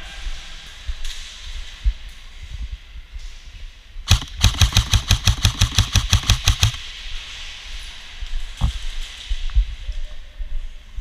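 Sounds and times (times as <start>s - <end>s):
airsoft rifle rapid firing: 4.1s - 6.8s.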